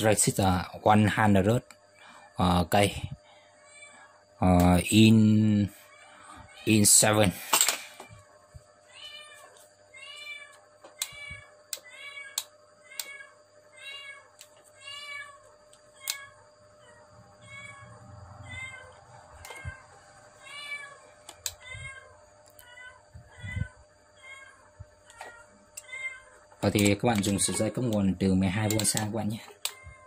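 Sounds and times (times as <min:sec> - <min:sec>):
cat meowing: 0:08.9 - 0:15.4, 0:16.0 - 0:26.3
sharp clicks: 0:26.6 - 0:29.8.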